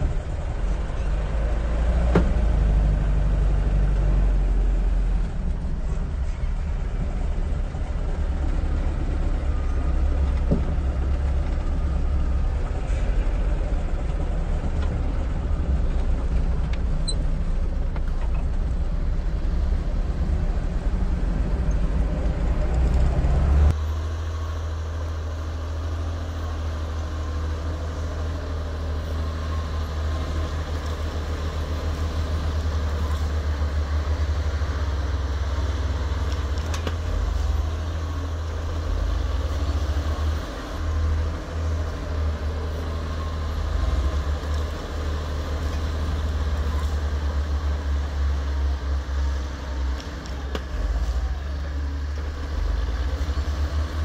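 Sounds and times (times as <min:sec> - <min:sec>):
low motor vehicle rumble: 0:00.0 - 0:54.0.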